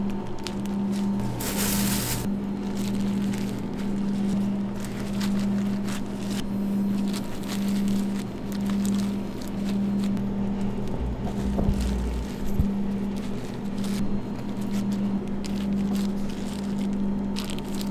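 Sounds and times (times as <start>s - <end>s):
machine hum pulsing: 0.0s - 17.9s
low rumble: 10.2s - 13.5s.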